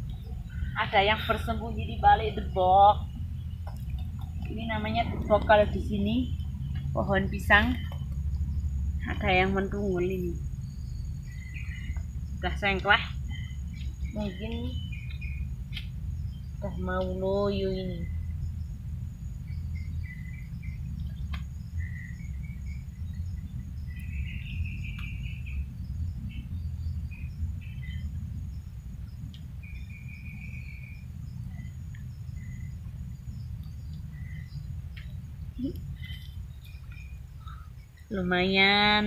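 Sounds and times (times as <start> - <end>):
birds chirping and trilling: 0.0 - 39.0
low steady rumble: 0.0 - 39.0.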